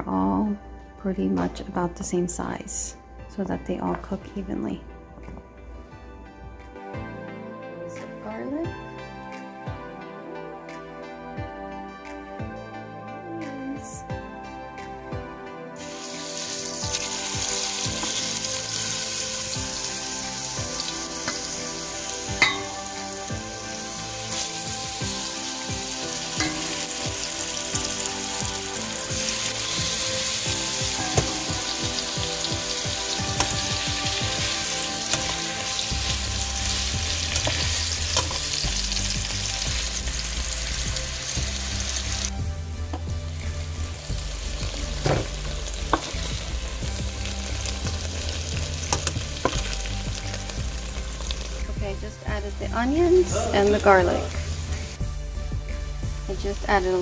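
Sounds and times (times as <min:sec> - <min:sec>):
chicken sizzling in a pan: 0:15.8 - 0:42.3, 0:43.7 - 0:51.6.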